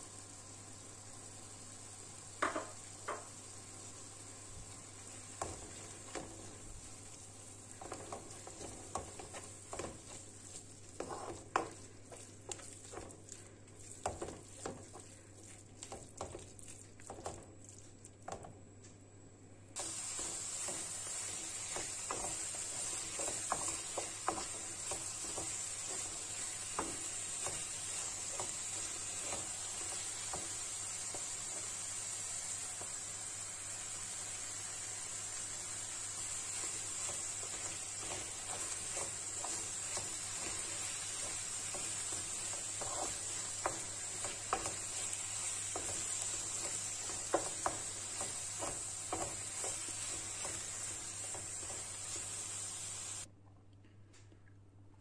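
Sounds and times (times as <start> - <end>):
food sizzling in oil: 0.0 - 18.5, 19.8 - 53.3
spatula scraping frying pan: 7.8 - 13.3, 19.8 - 31.6, 36.3 - 52.6.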